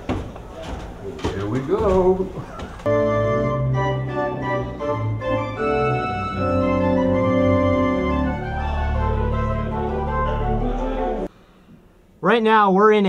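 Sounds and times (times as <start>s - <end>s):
pipe organ chords: 2.9s - 11.3s.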